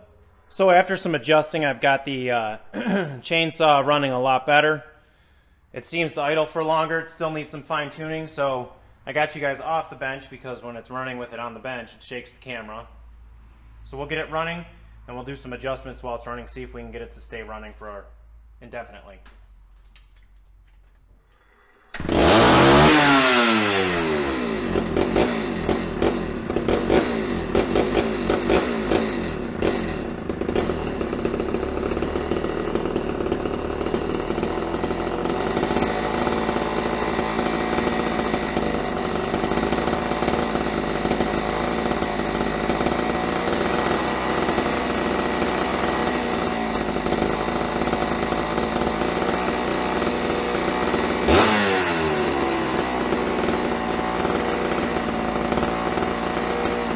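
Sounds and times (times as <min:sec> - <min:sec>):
chainsaw engine revving and idling: 0:21.4 - 0:56.9.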